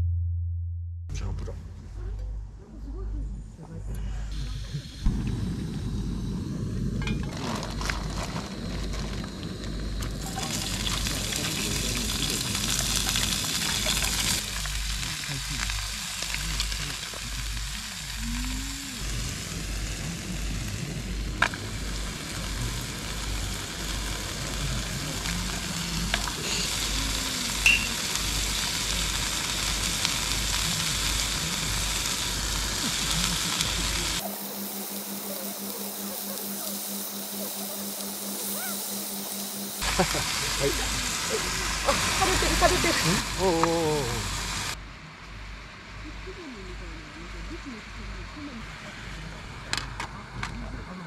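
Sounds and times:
vegetables sizzling in frying pan: 7.0s - 44.8s.

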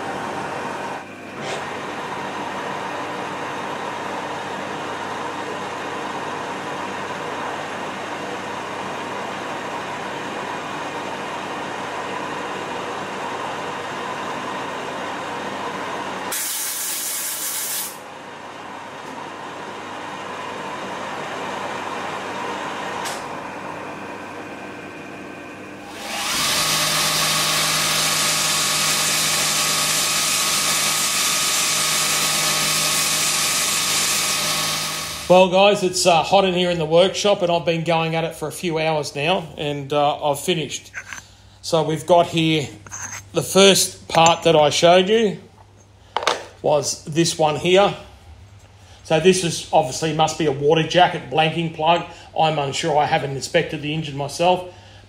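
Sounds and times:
metal lathe cutting with whine: 25.8s - 35.7s
bench grinder running: 25.8s - 36.4s.

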